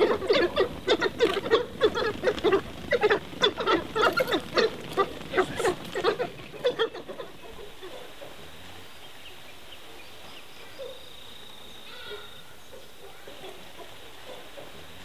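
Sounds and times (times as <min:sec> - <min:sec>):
wild dogs chattering calls: 0:00.0 - 0:15.0.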